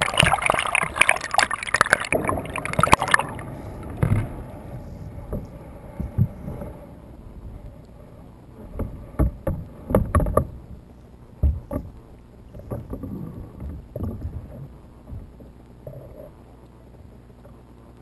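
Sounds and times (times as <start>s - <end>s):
rush of moving water: 0.0s - 4.6s
muffled underwater knocks: 3.9s - 4.4s, 5.3s - 6.5s, 8.6s - 10.6s, 11.4s - 16.3s.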